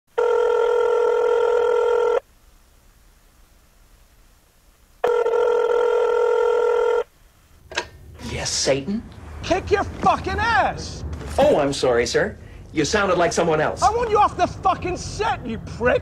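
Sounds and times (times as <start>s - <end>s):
telephone ringing: 0.2s - 2.2s, 5.0s - 7.1s.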